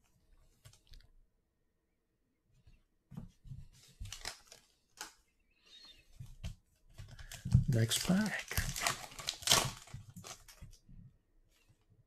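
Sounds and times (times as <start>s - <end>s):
foil wrapper crinkling: 4.0s - 5.2s, 7.1s - 10.7s.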